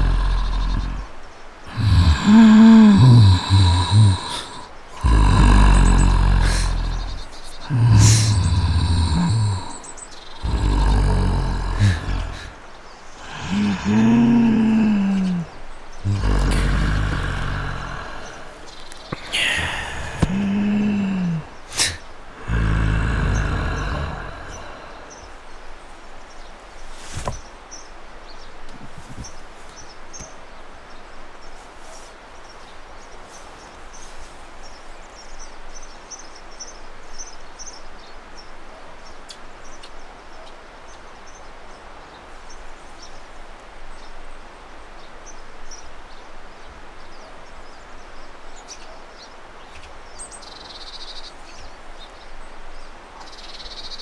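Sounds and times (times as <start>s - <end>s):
outdoor rushing hiss: 0.0s - 38.5s.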